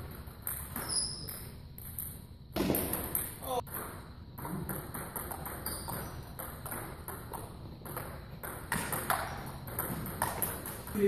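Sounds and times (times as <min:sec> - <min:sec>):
table tennis balls clicking: 0:02.8 - 0:11.0.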